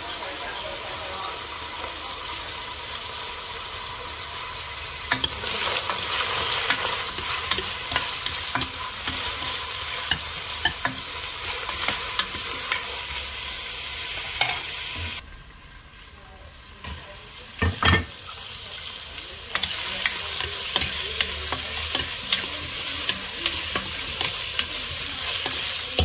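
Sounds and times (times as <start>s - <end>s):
vegetables sizzling in oil: 0.0s - 26.0s
utensil clinking against metal pot: 5.1s - 13.0s, 19.5s - 26.0s.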